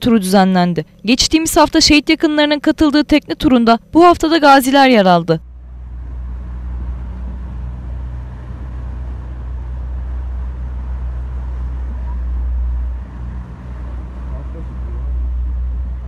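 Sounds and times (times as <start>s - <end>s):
outboard motor running: 5.4s - 16.0s
wind and water rushing: 5.5s - 16.0s.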